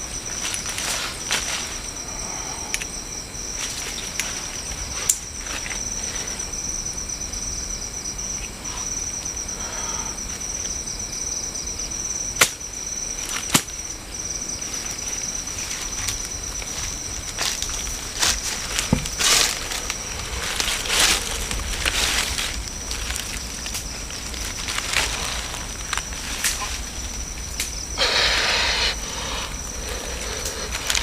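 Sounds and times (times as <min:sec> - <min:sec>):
crickets chirring: 0:00.0 - 0:31.0
dry leaf litter rustling: 0:14.6 - 0:31.0.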